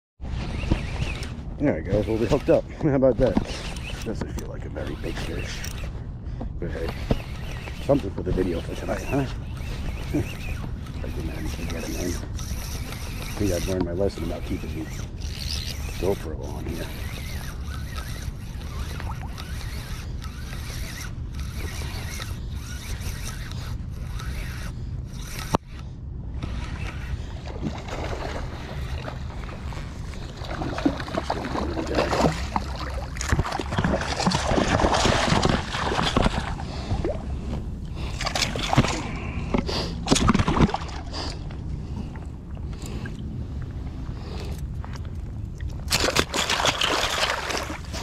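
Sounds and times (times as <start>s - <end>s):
surf washing and water sloshing: 27.3s - 42.4s, 45.6s - 48.0s.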